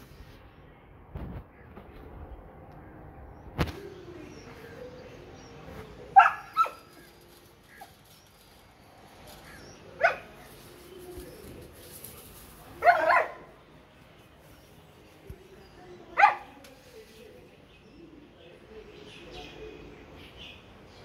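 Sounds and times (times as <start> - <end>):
puppy barking: 6.2 - 6.9, 10.0 - 10.3, 12.8 - 13.5, 16.2 - 16.5.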